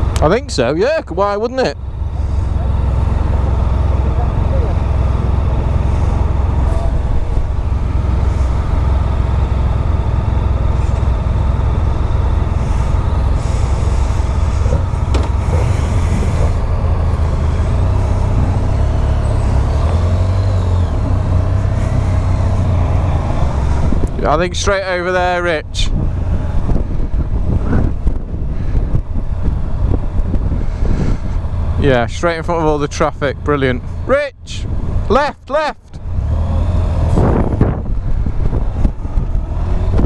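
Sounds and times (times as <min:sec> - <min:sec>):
motorcycle engine running: 0:00.0 - 0:35.2, 0:35.8 - 0:40.0
wind rumble on microphone: 0:05.9 - 0:09.1, 0:12.5 - 0:32.0, 0:36.6 - 0:40.0.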